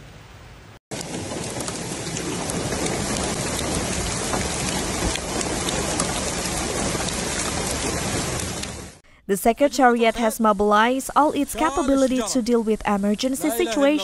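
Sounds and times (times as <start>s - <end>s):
heavy rain pouring: 0.9s - 9.0s
runoff water washing across road: 0.9s - 9.0s.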